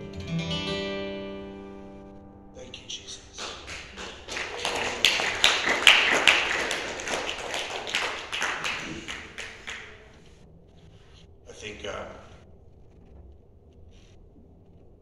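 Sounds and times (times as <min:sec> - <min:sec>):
congregation applauding: 0:02.7 - 0:10.2.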